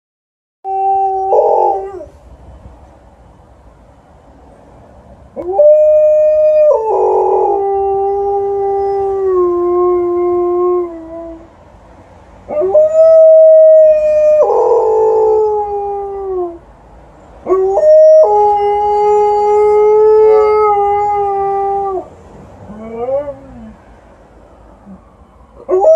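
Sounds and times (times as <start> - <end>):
dog howling: 0.7 - 2.1, 5.4 - 11.4, 12.5 - 16.6, 17.5 - 22.1, 22.7 - 23.8, 25.6 - 25.9.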